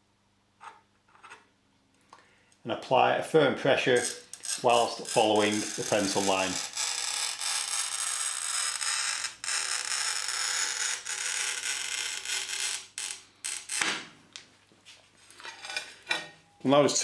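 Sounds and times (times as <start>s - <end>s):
tile cutter scratching ceramic tile: 4.0s - 13.9s.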